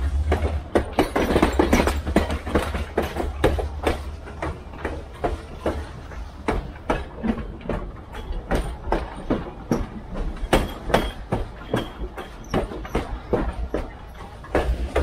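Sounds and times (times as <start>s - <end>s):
low train rumble: 0.0s - 15.0s
train wheels clacking over rail joints: 0.0s - 15.0s.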